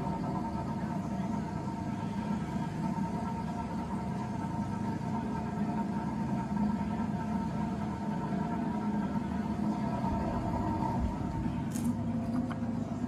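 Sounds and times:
ceiling fan droning: 0:00.0 - 0:13.0.

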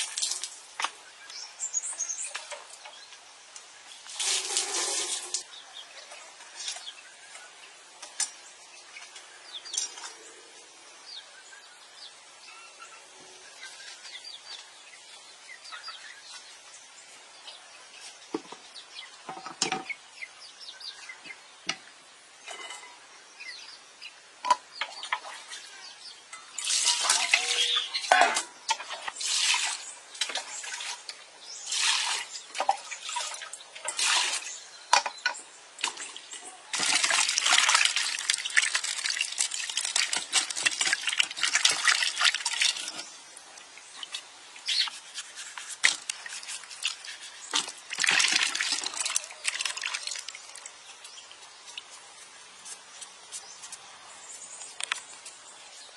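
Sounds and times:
water ladled splashing: 0:04.1 - 0:05.5, 0:26.4 - 0:51.9
hands scrubbing in water basin: 0:36.7 - 0:43.1, 0:44.0 - 0:50.6.

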